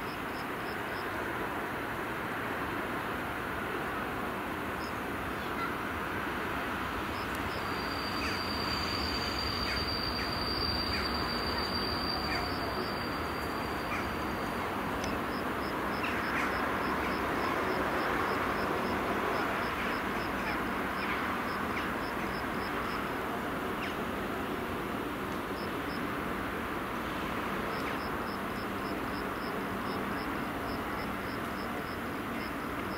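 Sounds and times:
train rolling rumble: 1.2 - 32.9.

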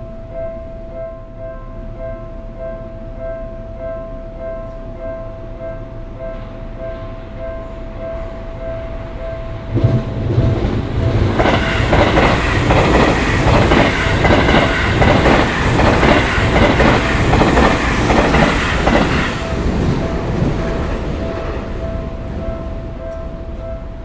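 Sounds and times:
level-crossing alarm ringing: 0.0 - 24.0
train wheels clacking over rails: 9.7 - 21.8.

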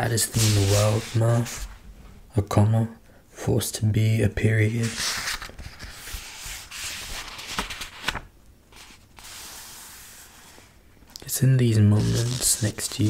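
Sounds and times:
book pages rustling: 0.2 - 1.8, 4.8 - 10.7, 12.0 - 13.0.

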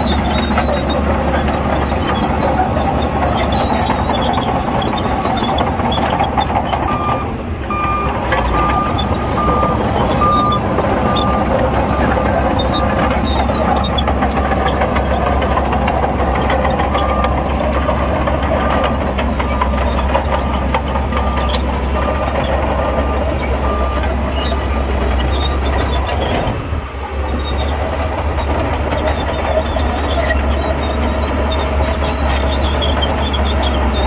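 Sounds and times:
bulldozer diesel engine: 0.0 - 34.0
steel tracks clanking: 0.0 - 34.0
reversing alarm beeping: 6.9 - 14.6, 19.9 - 24.7.

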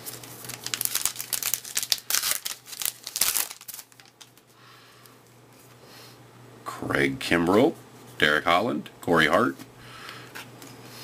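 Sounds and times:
wrapper crinkling: 0.0 - 4.5.

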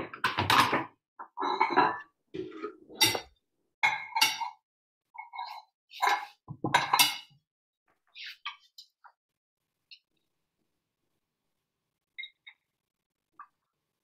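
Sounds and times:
utensils clinking on ceramic plates: 1.3 - 4.6, 5.2 - 7.4.

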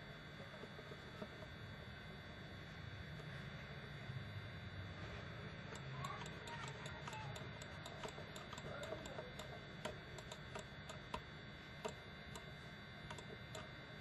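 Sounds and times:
computer mouse clicking: 5.7 - 12.5, 13.1 - 13.7.

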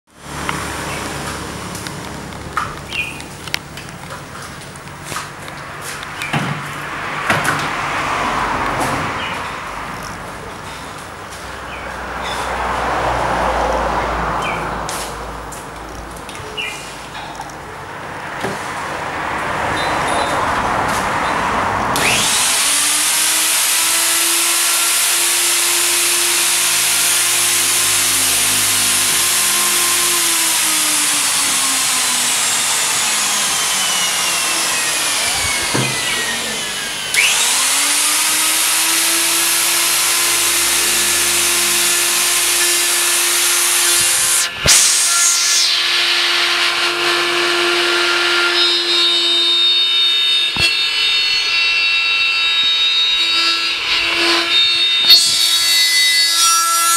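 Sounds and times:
electric router whining: 22.0 - 56.3.

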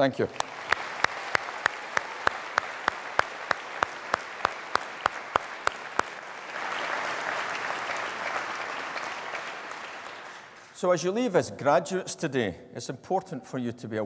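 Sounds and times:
audience applauding: 0.0 - 10.8
sharp claps close to microphone: 0.0 - 10.8.

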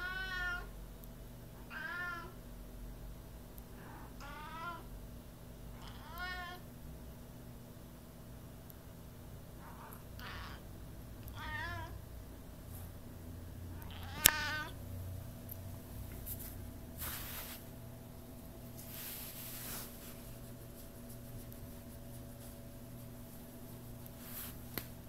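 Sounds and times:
cat meowing: 0.0 - 0.7, 1.7 - 2.4, 4.2 - 4.9, 5.8 - 6.6, 9.7 - 10.6, 11.3 - 12.0, 13.8 - 14.8.

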